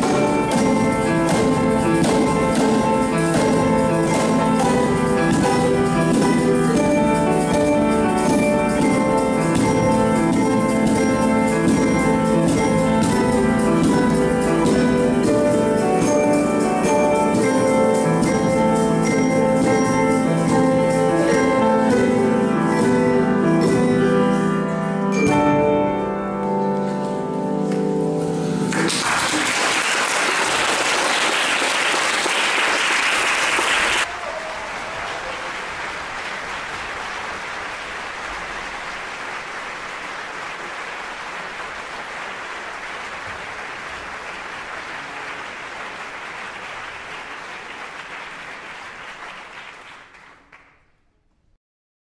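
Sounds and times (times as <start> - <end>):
audience applauding: 28.7 - 50.9.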